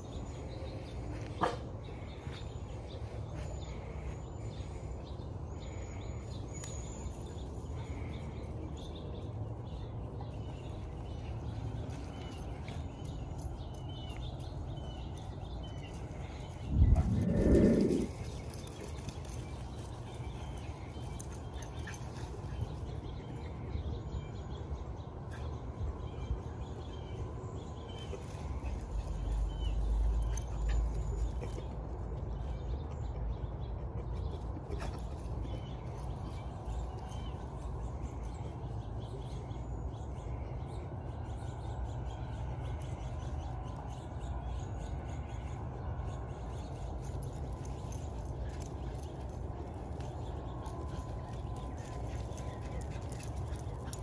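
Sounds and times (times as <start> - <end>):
outdoor background noise: 0.0 - 54.0
low rumble: 16.6 - 18.5.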